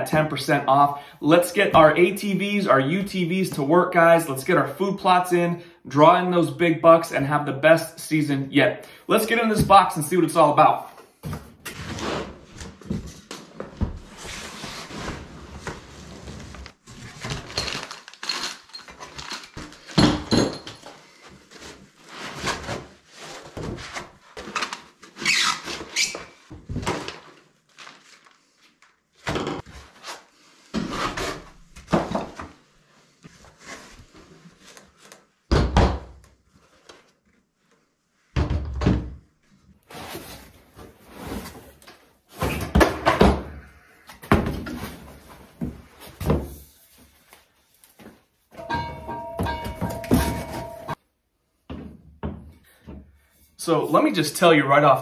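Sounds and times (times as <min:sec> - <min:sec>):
foam blocks rubbing and squeaking: 0:21.4 - 0:26.5.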